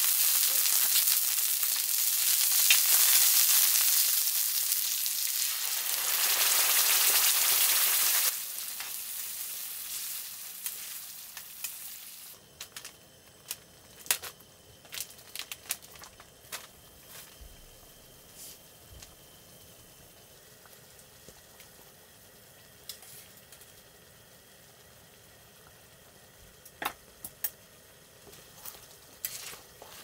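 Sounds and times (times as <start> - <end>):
shrimp sizzling in hot oil: 0.0 - 17.2, 17.8 - 30.0
sauce simmering with small pops: 20.5 - 29.3.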